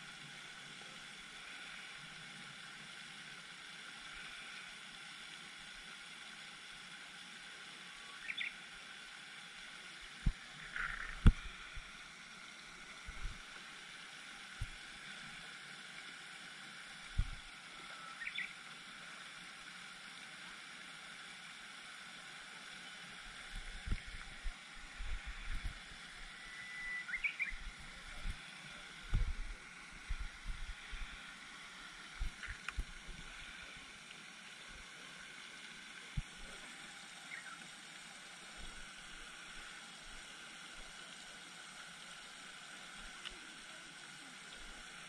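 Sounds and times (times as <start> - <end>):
fountain water hiss: 0.0 - 45.0
high bird chirps: 26.7 - 27.6.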